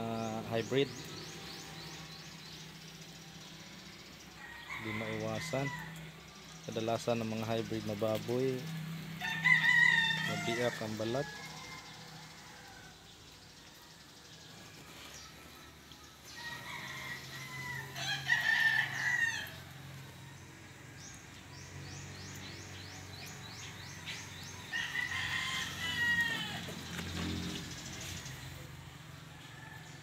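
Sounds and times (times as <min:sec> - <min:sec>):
rooster crowing: 0:04.3 - 0:06.2, 0:09.1 - 0:13.2, 0:14.1 - 0:20.6, 0:24.4 - 0:28.1, 0:29.2 - 0:30.0.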